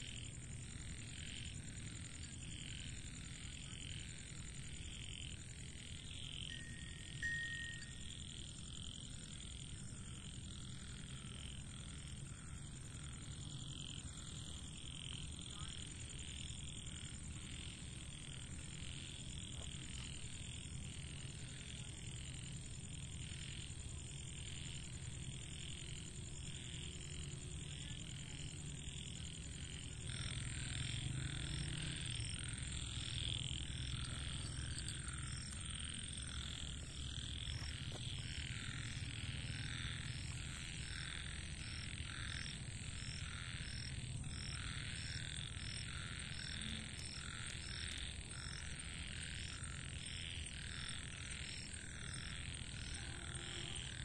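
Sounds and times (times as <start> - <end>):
frogs croaking: 0.0 - 54.0
high-pitched whine: 6.5 - 8.6.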